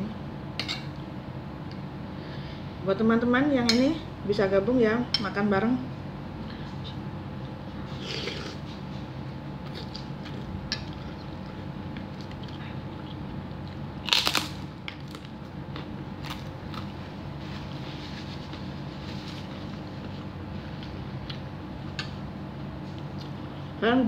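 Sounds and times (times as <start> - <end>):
steady low hum: 0.0 - 24.0
chewing: 9.7 - 14.4
crunchy bite into cracker: 14.0 - 15.4.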